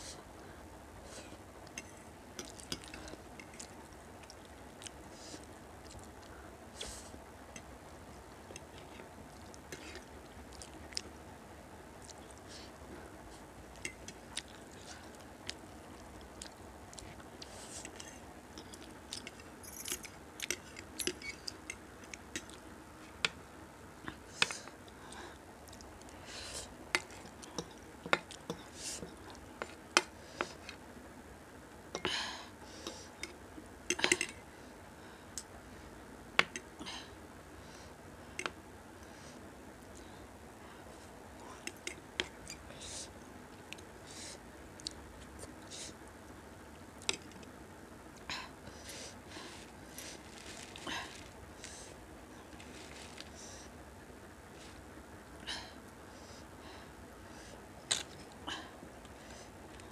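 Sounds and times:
person chewing noodles: 0:13.7 - 0:23.3.

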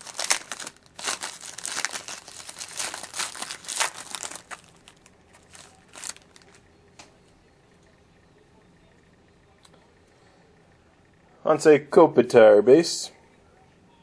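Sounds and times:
foil wrapper crinkling and tearing: 0:00.0 - 0:06.6.

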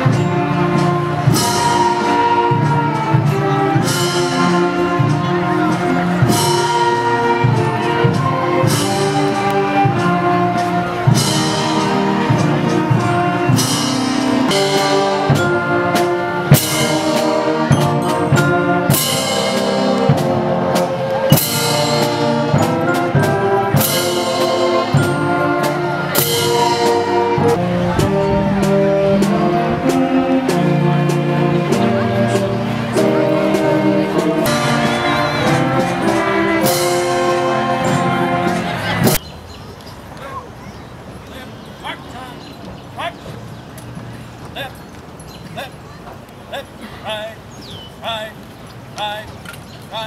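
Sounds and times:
concert band playing a march: 0:00.0 - 0:39.2.

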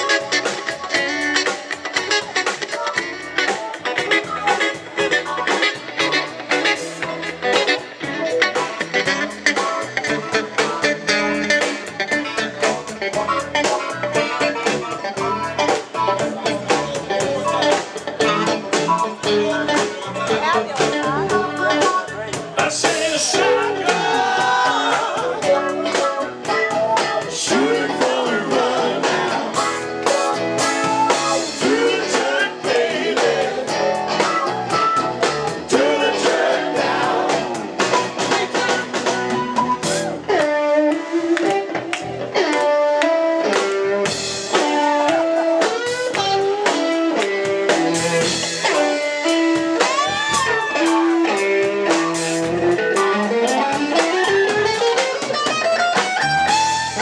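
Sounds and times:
bass guitar: 0:00.0 - 0:57.0
drum kit: 0:00.0 - 0:57.0
electric guitar: 0:00.0 - 0:57.0
person singing: 0:22.6 - 0:29.8, 0:30.6 - 0:38.9.

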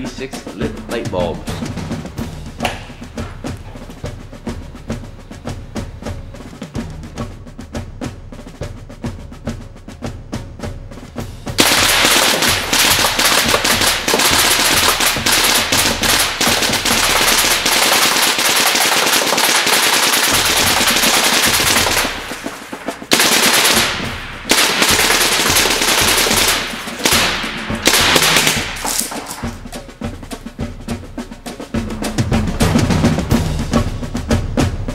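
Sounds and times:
pellet gun firing full auto: 0:11.6 - 0:29.6.

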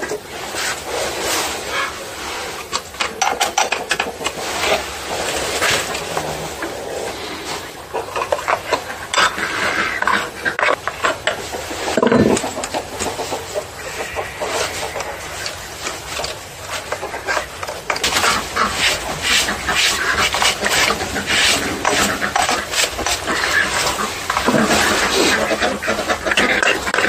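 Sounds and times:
rapid rubbing strokes: 0:11.6 - 0:27.0
scraping inside plastic cover: 0:14.0 - 0:27.0.

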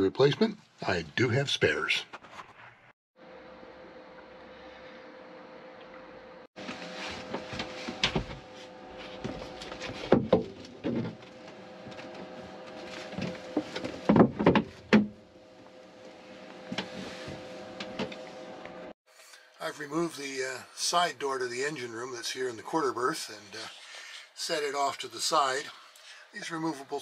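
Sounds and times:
faint steady hum: 0:15.2 - 0:27.0.

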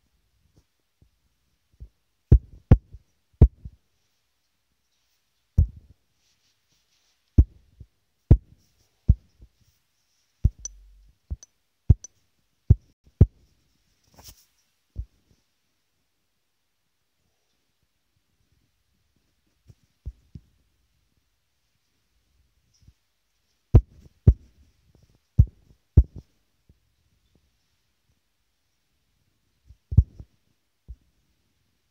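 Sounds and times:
scratchy rustle: 0:06.2 - 0:07.6, 0:13.9 - 0:14.8
fingertips tapping touchscreen: 0:10.4 - 0:12.1.

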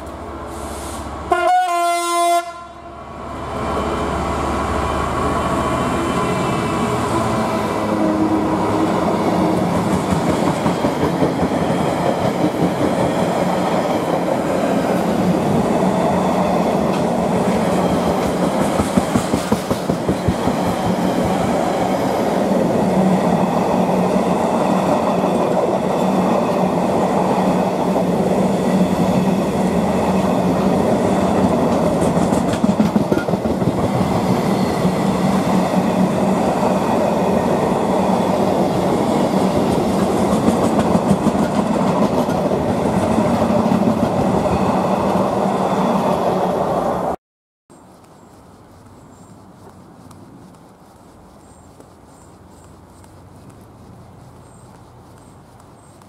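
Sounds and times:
train wheels rumbling on rails: 0:03.4 - 0:47.2.

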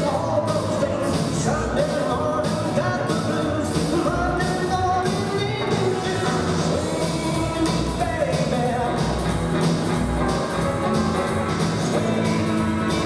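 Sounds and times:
rock and roll music with singer: 0:00.0 - 0:13.0.

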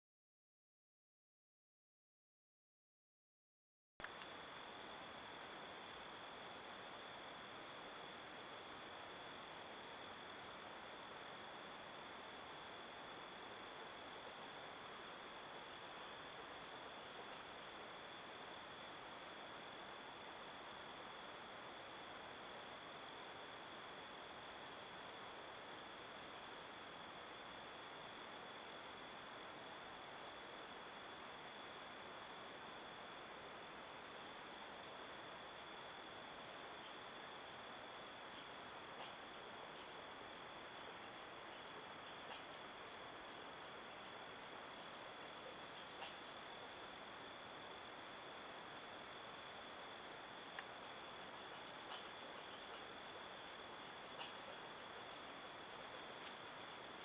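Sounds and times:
faint ticks: 0:04.0 - 0:04.4, 0:33.8 - 0:47.0, 0:49.3 - 0:57.0
faint hiss: 0:04.0 - 0:57.0
insect chirps: 0:04.0 - 0:57.0
insects trilling: 0:04.0 - 0:57.0.

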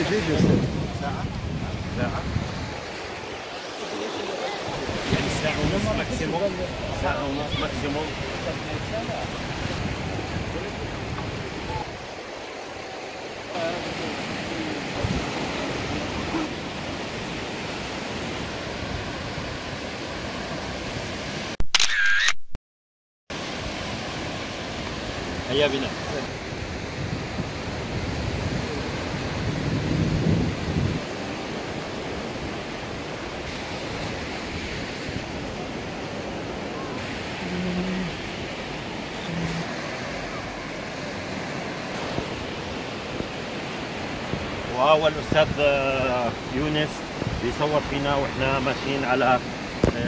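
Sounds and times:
wind buffeting microphone: 0:00.0 - 0:03.6, 0:04.6 - 0:12.4, 0:14.8 - 0:20.2, 0:26.3 - 0:48.4
surf breaking on beach: 0:00.0 - 0:21.6, 0:23.3 - 0:50.0.

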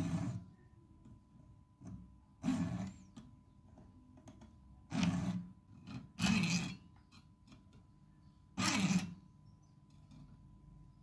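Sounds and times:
metal tool scraping steel nut: 0:00.0 - 0:00.6, 0:02.4 - 0:03.2, 0:04.9 - 0:07.7, 0:08.6 - 0:09.2.

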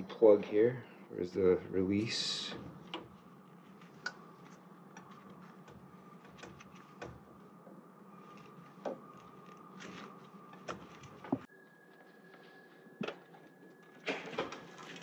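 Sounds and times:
steady low hum: 0:00.0 - 0:11.5.

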